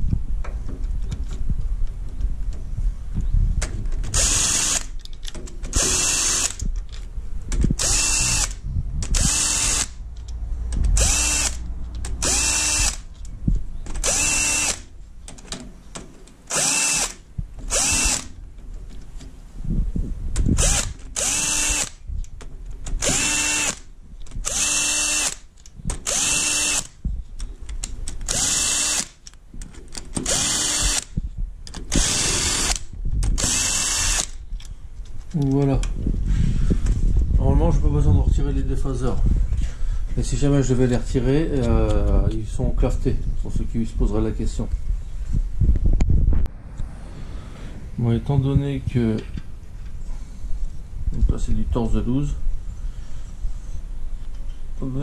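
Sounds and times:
cordless power tool bursts: 4.1s - 4.9s, 5.7s - 6.7s, 7.8s - 10.0s, 11.0s - 13.1s, 14.0s - 14.9s, 16.5s - 18.4s, 20.5s - 22.0s, 23.0s - 27.0s, 28.2s - 29.2s, 30.2s - 31.1s, 31.9s - 34.4s.

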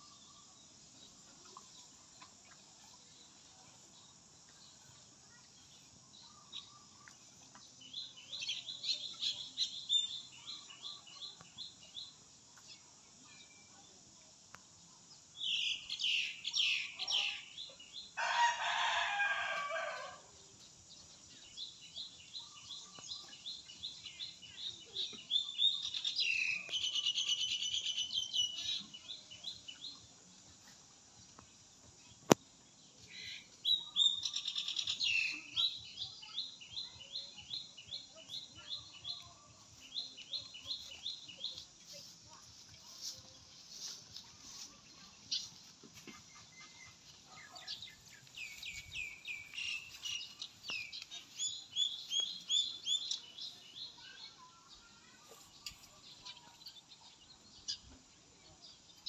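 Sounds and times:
rooster crowing: 18.2s - 20.2s
birds chirping: 32.9s - 59.0s.

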